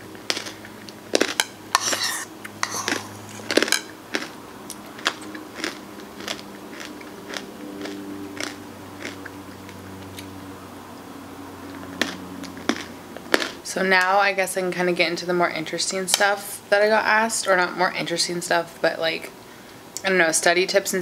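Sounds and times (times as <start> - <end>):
person chewing crunchy food: 0.0 - 10.4, 11.6 - 13.6.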